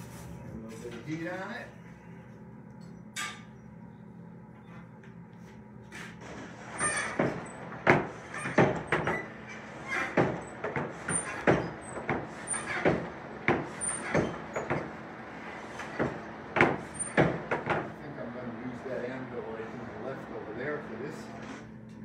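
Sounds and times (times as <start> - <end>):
forge bellows creaking and puffing: 6.0 - 22.0
high squeaks from bellows mechanism: 6.2 - 13.1, 13.7 - 17.3.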